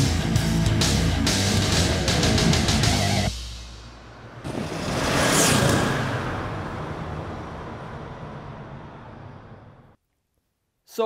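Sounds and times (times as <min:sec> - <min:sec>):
intro music: 0:00.0 - 0:04.3
low rumble: 0:02.1 - 0:10.0
whoosh sound effect: 0:03.4 - 0:07.6.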